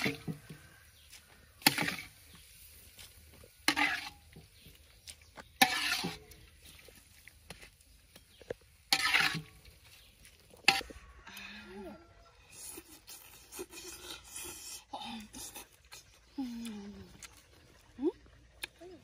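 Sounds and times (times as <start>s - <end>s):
mouth chewing sounds: 12.4s - 19.0s.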